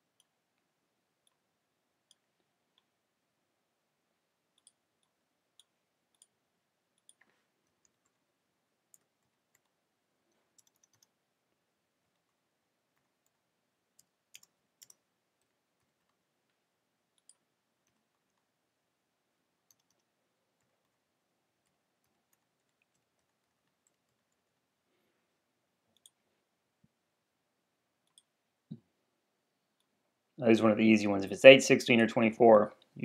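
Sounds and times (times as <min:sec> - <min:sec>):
mouse clicks: 0:04.5 - 0:06.4, 0:07.0 - 0:08.2, 0:08.9 - 0:11.2, 0:14.0 - 0:16.2, 0:17.1 - 0:18.5, 0:19.7 - 0:21.0, 0:25.9 - 0:26.2, 0:28.0 - 0:28.8.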